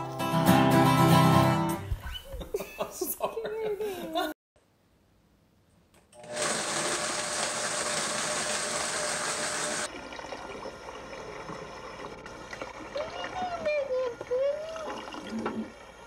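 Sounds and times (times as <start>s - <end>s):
tap water running into bath: 7.0s - 16.0s.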